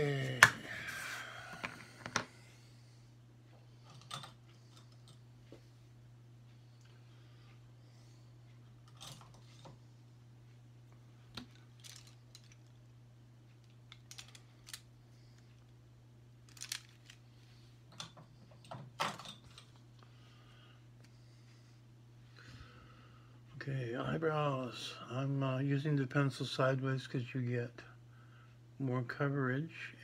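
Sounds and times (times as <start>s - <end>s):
small objects clicking and rattling: 11.4s - 12.8s, 13.6s - 14.9s, 16.5s - 17.2s.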